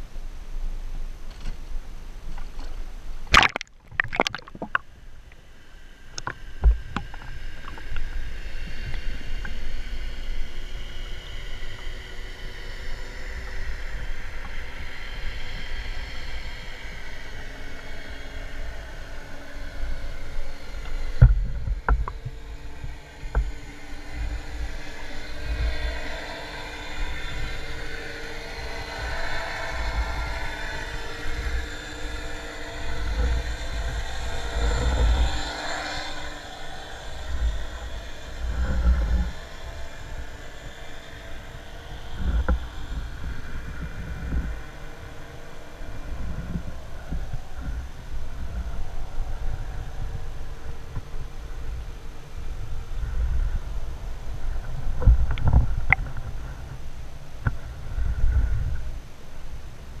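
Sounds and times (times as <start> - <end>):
underwater rumble and sloshing: 0.3 - 12.0, 12.8 - 60.0
sharp splashes and knocks: 3.3 - 4.9.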